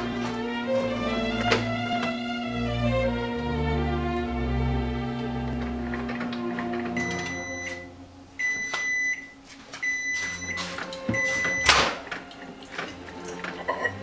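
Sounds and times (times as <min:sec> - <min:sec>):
microwave oven beeping: 0:05.0 - 0:14.0.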